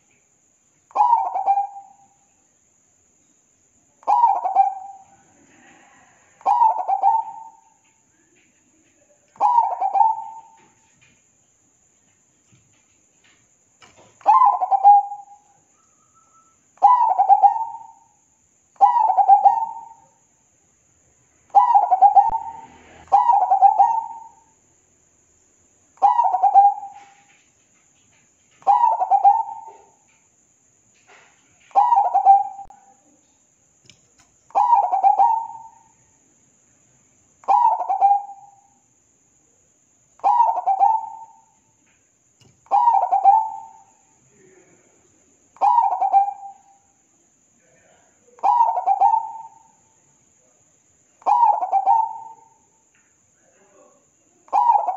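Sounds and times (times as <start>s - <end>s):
dove cooing: 0.9s - 2.0s, 4.0s - 7.7s, 9.4s - 10.7s, 14.2s - 15.4s, 16.8s - 18.0s, 18.8s - 20.0s, 21.5s - 24.4s, 26.0s - 27.2s, 28.6s - 30.0s, 31.7s - 32.9s, 34.5s - 35.8s, 37.4s - 38.6s, 40.2s - 41.5s, 42.7s - 43.9s, 45.6s - 46.7s, 48.4s - 49.7s, 51.2s - 52.6s, 54.5s - 54.9s.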